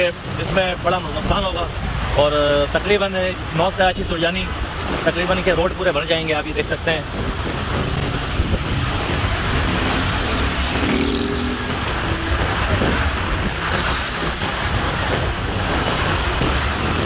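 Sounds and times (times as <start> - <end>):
heavy rain pouring on road: 0.0 - 17.0
road traffic: 0.0 - 17.0
wind buffeting microphone: 6.7 - 17.0.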